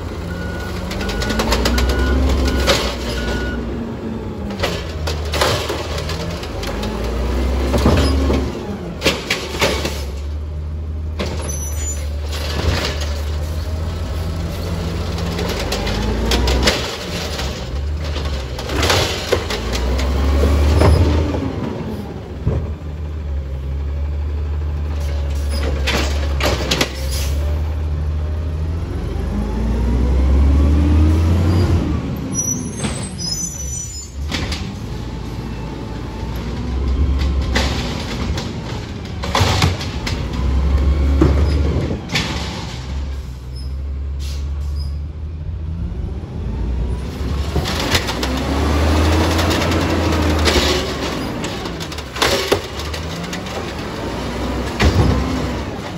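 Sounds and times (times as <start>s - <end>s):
carts clanking and knocking: 0.0s - 3.6s, 4.3s - 23.2s, 24.5s - 27.4s, 32.6s - 43.3s, 47.1s - 55.9s
garbage truck engine revving: 0.0s - 55.9s
air brakes hissing: 44.2s - 45.0s.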